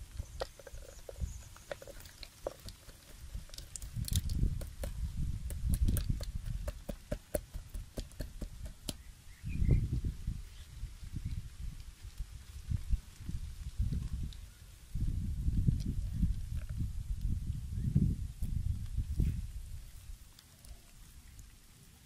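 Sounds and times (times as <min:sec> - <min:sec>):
bamboo trap clicks and rattles: 0:00.2 - 0:06.9.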